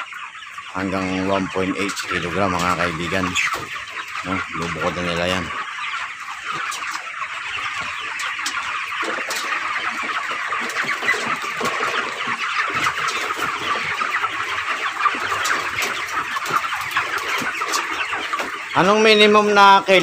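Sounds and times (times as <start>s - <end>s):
chickens peeping and clucking: 0.0s - 20.0s.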